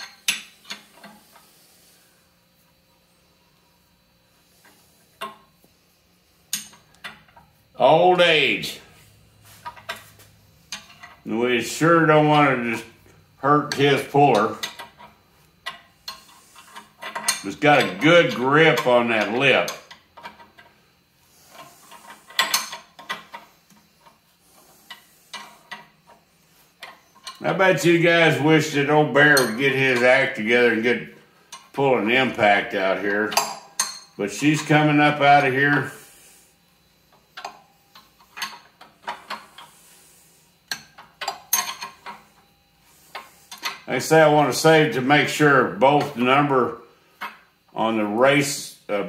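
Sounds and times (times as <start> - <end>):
metal clicks and clanks: 13.7 - 20.7, 33.2 - 34.8, 37.4 - 39.7, 40.7 - 42.3
wrench clinking on bolt head: 33.3 - 34.7, 40.7 - 42.2.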